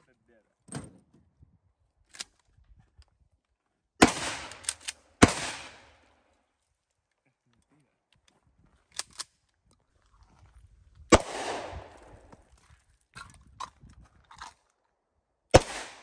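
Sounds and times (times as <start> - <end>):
pistol shot with echo: 4.0 - 4.6, 5.2 - 6.0, 11.1 - 12.0, 15.5 - 16.0.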